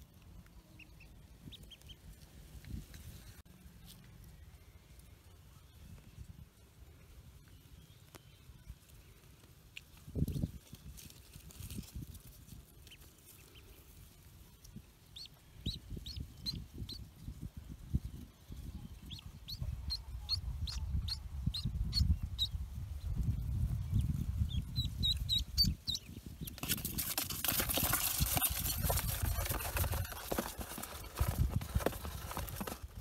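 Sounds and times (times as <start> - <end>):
ducklings peeping: 0.6 - 2.2, 12.6 - 26.6
handling and rustling noise: 26.2 - 33.0
scratchy rustling on cardboard: 26.6 - 33.0.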